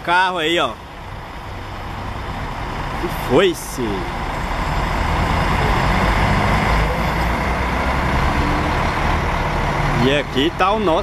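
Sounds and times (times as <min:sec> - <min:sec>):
diesel coach engine rumble: 0:00.0 - 0:11.0.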